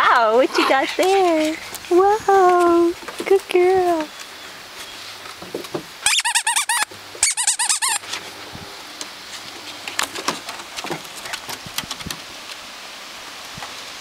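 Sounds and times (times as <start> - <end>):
squeaky dog toy squeaking: 6.0 - 8.0.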